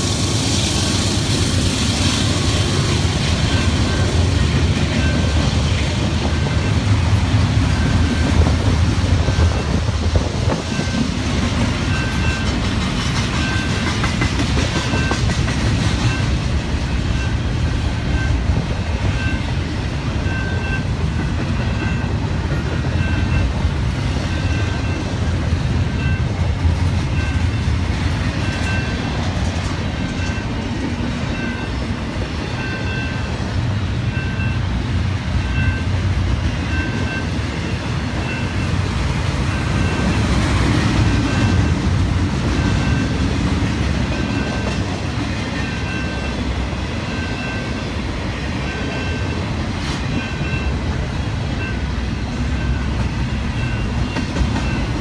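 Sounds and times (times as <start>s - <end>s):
freight train wheels rumbling: 0.0s - 55.0s
crossing warning bell dinging: 2.3s - 55.0s.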